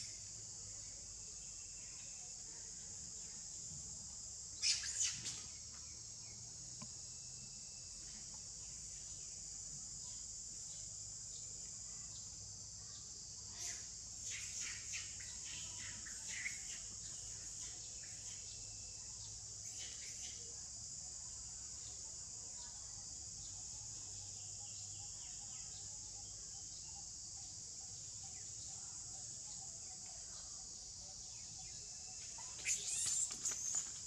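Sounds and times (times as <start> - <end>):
high-pitched insect drone: 30.8 - 34.0
faint short chirps: 32.4 - 34.0.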